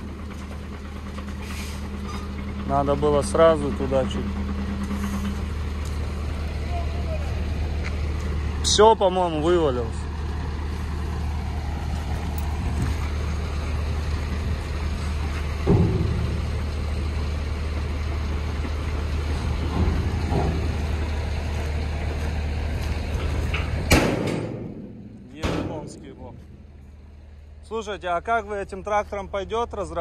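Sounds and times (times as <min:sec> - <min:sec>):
diesel truck engine running: 0:00.0 - 0:30.0
loud bang: 0:15.6 - 0:17.0, 0:23.9 - 0:26.9.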